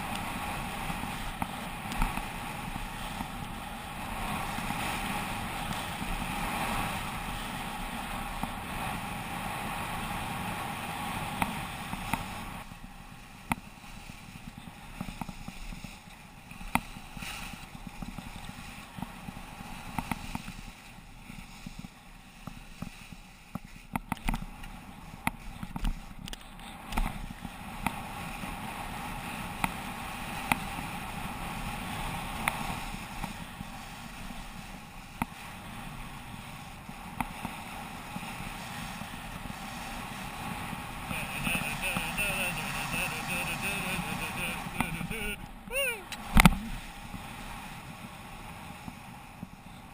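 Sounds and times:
scraping rush on snow: 0:00.0 - 0:45.4
wind on microphone: 0:00.0 - 0:49.9.

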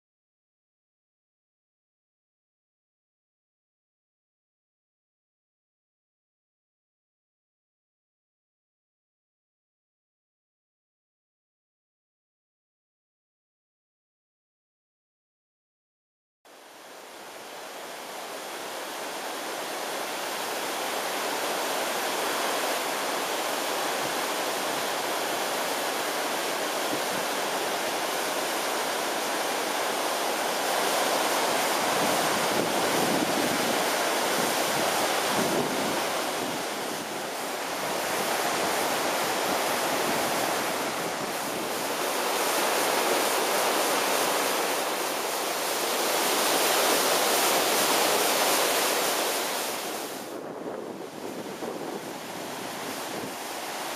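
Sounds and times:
waterfall rushing: 0:16.8 - 0:50.4.

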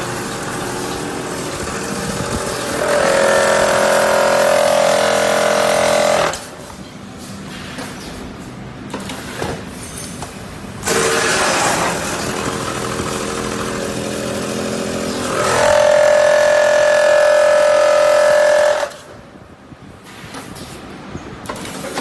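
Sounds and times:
vacuum packing machine running: 0:00.0 - 0:06.6, 0:10.8 - 0:19.3.

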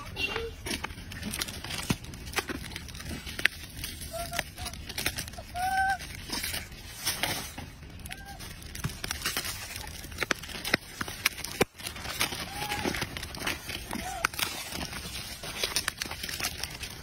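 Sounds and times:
plastic wrapper crackling: 0:00.0 - 0:17.0
monkeys giving coo calls: 0:04.0 - 0:06.6.

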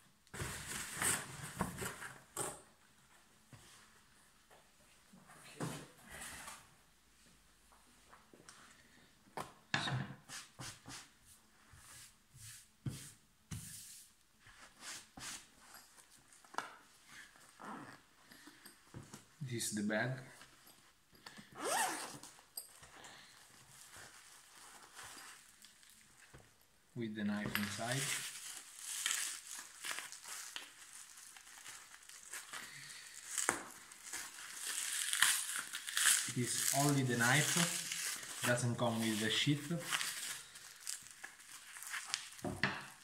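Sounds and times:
bubble wrap crinkling: 0:23.4 - 0:26.4, 0:27.6 - 0:43.0
fabric and paper rustling: 0:27.6 - 0:43.0.

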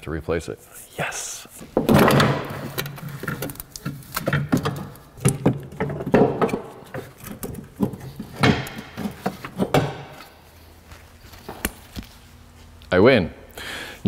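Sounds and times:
strut assembly knocking and scraping: 0:01.8 - 0:10.4.

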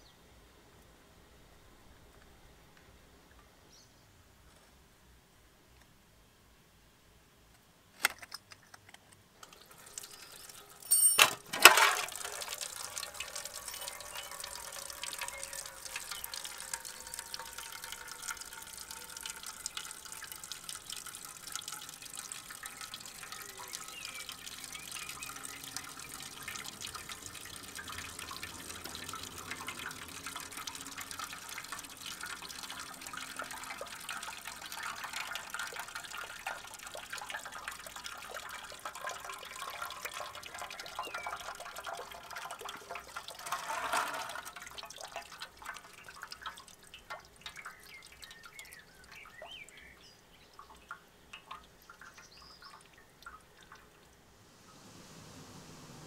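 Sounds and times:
liquid splashing onto paving stones: 0:09.4 - 0:50.0
liquid trickling into metal pan: 0:09.4 - 0:54.2.

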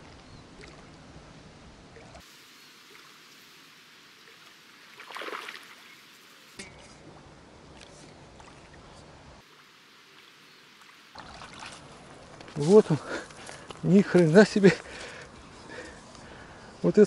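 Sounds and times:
fish splashing: 0:02.0 - 0:06.6, 0:09.4 - 0:12.4
river water rushing: 0:02.2 - 0:06.6.

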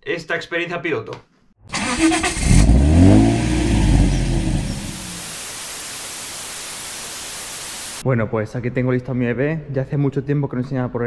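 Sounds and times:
car engine revving: 0:01.7 - 0:05.4
hiss of static: 0:04.6 - 0:08.0.

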